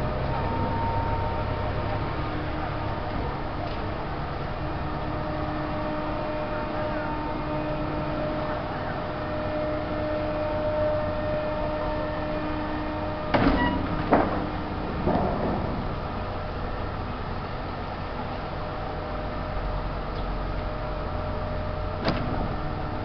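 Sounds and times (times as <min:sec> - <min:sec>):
mechanical drone with hum: 0:00.0 - 0:23.0
loud knocks: 0:13.3 - 0:16.3.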